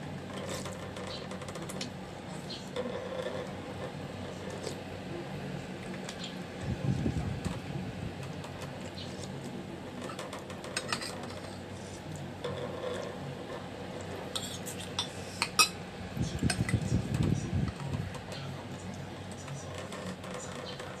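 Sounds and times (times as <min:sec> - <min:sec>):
cutlery clinking on a plate: 0:10.1 - 0:11.5, 0:14.4 - 0:15.8.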